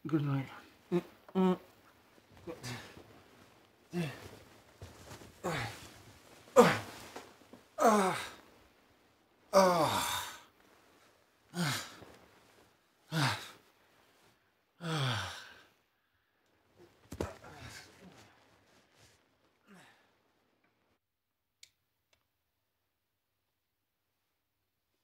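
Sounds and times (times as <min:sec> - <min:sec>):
person sighing heavily: 0:02.4 - 0:03.0, 0:03.9 - 0:04.4, 0:05.4 - 0:05.9, 0:06.5 - 0:07.2, 0:07.8 - 0:08.4, 0:09.5 - 0:10.5, 0:11.5 - 0:12.1, 0:13.1 - 0:13.6, 0:14.8 - 0:15.6, 0:19.6 - 0:20.1.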